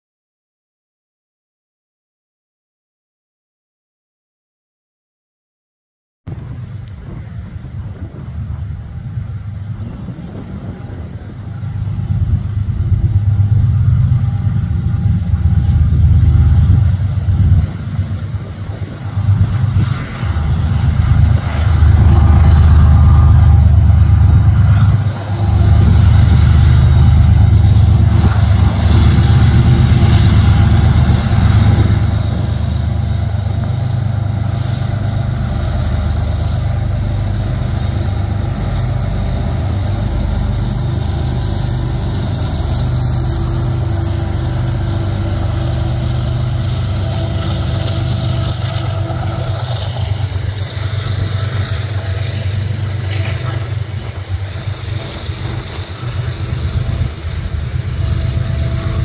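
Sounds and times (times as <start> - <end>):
diesel locomotive engine rumble: 6.3 - 59.0.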